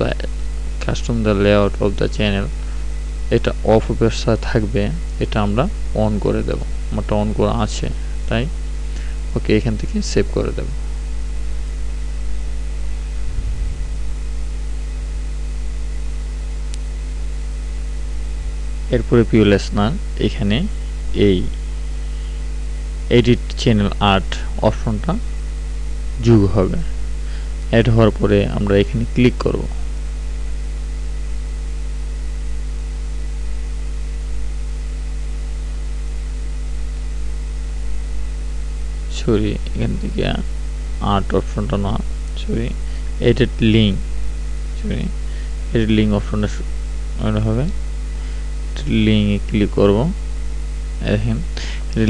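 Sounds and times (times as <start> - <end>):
constant hiss: 0.0 - 52.0
electrical mains hum: 0.0 - 52.0
background hiss: 51.0 - 52.0.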